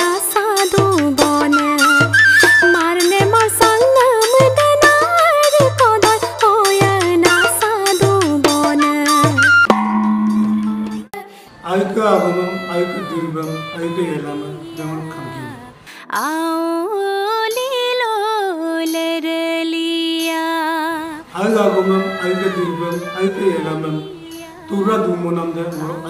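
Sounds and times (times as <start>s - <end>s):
woman singing unaccompanied: 0.0s - 9.7s, 10.8s - 26.0s
man speaking: 11.6s - 15.5s, 21.4s - 24.1s.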